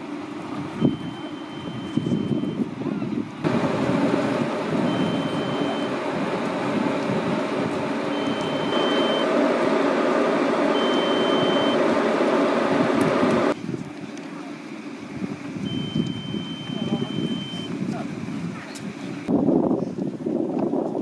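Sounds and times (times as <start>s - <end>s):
engine-like rumble: 0.0s - 20.0s
high electronic beep: 0.8s - 2.7s, 4.9s - 5.9s, 8.1s - 9.3s, 10.7s - 11.8s, 15.7s - 17.7s.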